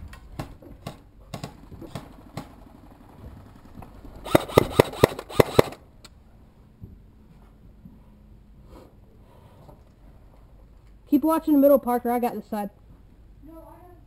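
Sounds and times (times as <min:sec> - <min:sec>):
airsoft gun shots: 0:04.2 - 0:05.8
light steps and knocks: 0:06.7 - 0:08.2.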